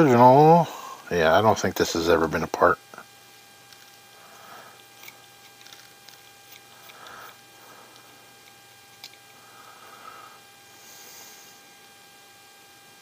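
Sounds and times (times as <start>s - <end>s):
electrical hum: 0.0s - 13.0s
screwdriver scraping: 4.8s - 9.3s.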